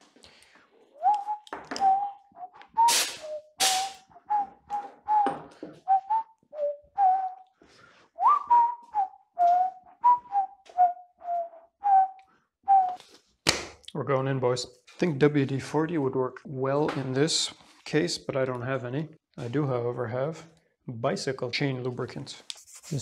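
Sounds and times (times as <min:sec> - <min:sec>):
person whistling a tune: 0:01.0 - 0:07.6, 0:08.2 - 0:13.1.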